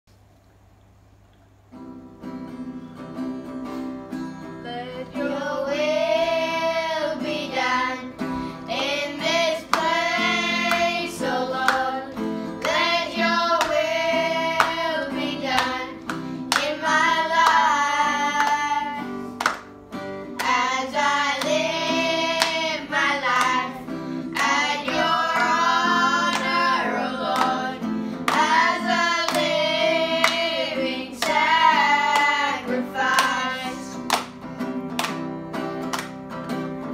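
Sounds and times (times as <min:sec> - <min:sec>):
acoustic guitar strumming: 0:01.7 - 0:36.9
children singing: 0:04.6 - 0:19.4, 0:20.4 - 0:34.1
hands clapping: 0:09.6 - 0:30.6, 0:31.2 - 0:36.9.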